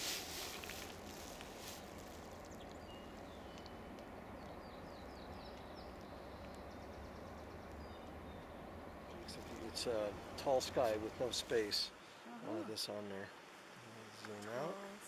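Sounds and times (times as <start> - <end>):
songbird singing: 0.0 - 12.1
faint steady rushing: 0.0 - 14.2.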